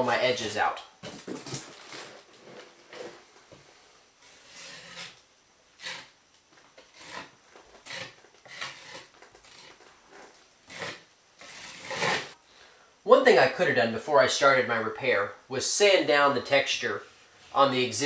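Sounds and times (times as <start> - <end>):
putty knife scraping drywall: 4.2 - 5.2, 5.8 - 6.1, 6.8 - 12.4.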